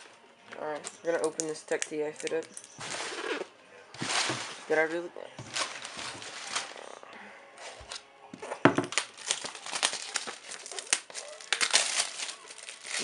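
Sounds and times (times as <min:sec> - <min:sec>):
packing material and cardboard rustling: 0:02.2 - 0:07.0, 0:08.6 - 0:13.0.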